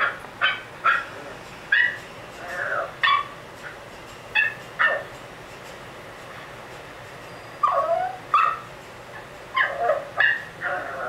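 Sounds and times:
small dog yipping: 0.0s - 1.1s, 1.7s - 3.4s, 4.4s - 5.1s, 7.6s - 8.7s, 9.5s - 11.0s.

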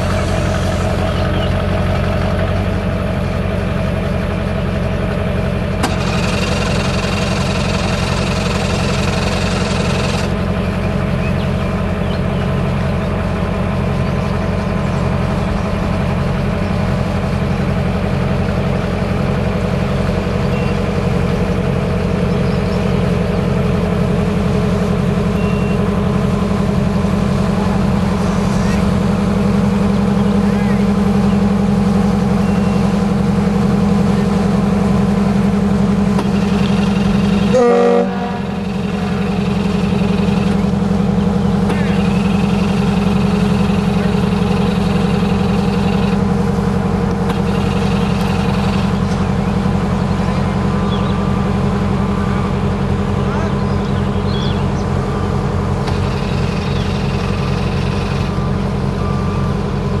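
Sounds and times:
boat engines droning: 0.0s - 60.0s
brief higher tone: 25.3s - 25.8s.

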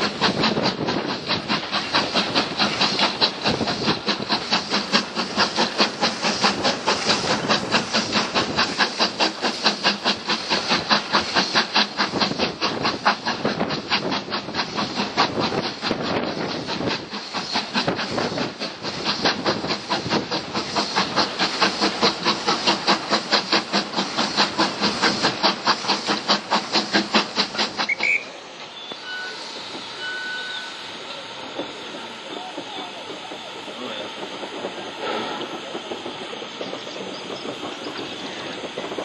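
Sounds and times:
steady steam hiss: 0.0s - 39.0s
steam locomotive chuffing: 0.0s - 39.0s
train rolling on rails: 0.0s - 39.0s.

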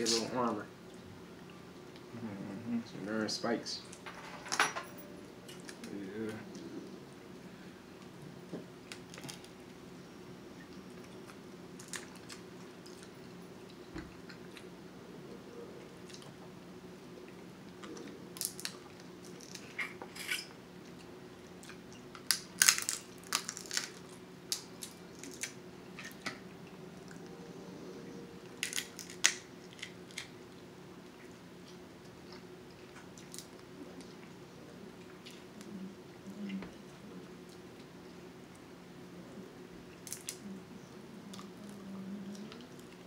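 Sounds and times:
low hum: 4.6s - 19.5s, 23.8s - 43.0s
crab shells cracking: 11.7s - 13.1s, 17.8s - 20.0s, 22.1s - 26.2s, 28.6s - 30.4s, 40.0s - 40.4s.

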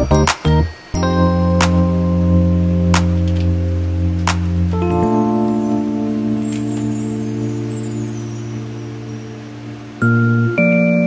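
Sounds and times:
gentle background music: 0.0s - 11.0s.

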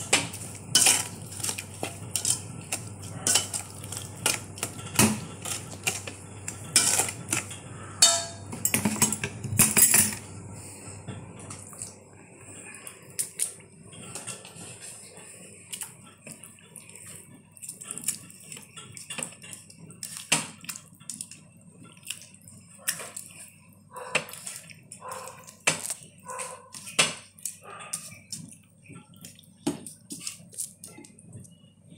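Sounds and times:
meat squelching in marinade: 0.0s - 8.0s, 15.7s - 31.7s.

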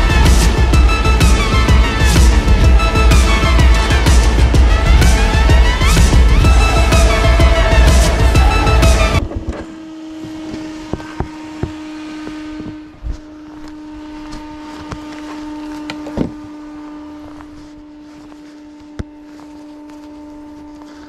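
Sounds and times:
background music: 0.0s - 9.4s.

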